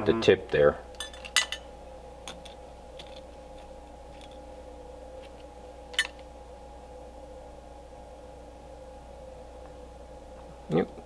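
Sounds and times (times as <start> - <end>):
steady hum: 0.0 - 11.0
metal part clinking into cup: 1.0 - 1.6, 6.0 - 6.2
small metal parts clicking: 5.9 - 6.2.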